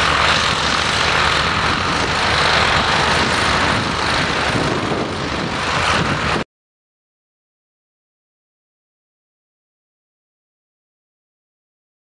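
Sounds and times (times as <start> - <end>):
tractor diesel engine running: 0.0 - 6.4.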